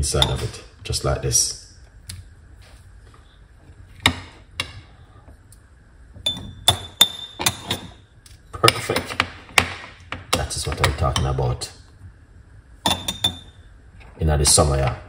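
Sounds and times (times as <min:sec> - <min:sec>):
metal spoon tapping glass: 0:06.2 - 0:07.8, 0:12.8 - 0:13.6.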